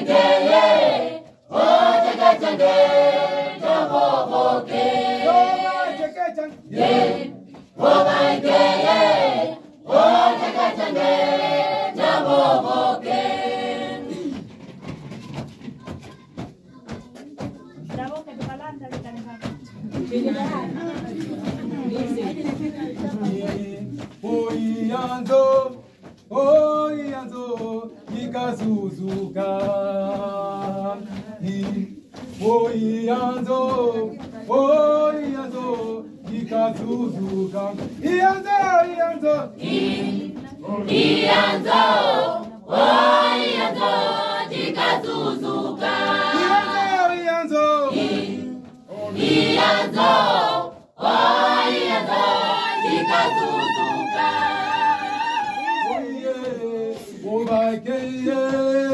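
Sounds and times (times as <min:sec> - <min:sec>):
mixed choir singing: 0:00.0 - 0:14.5, 0:19.9 - 0:25.8, 0:27.9 - 0:37.9, 0:39.1 - 0:58.9.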